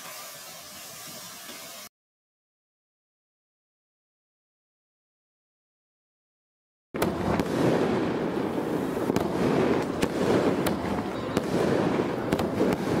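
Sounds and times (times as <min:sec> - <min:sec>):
fireworks crackling: 0:00.0 - 0:01.9, 0:07.0 - 0:13.0
fireworks sharp cracks: 0:07.0 - 0:13.0.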